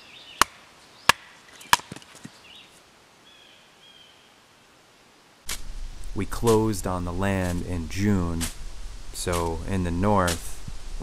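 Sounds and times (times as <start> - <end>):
chopping wood: 0.4 - 2.3
faint bird chirps: 2.3 - 4.4.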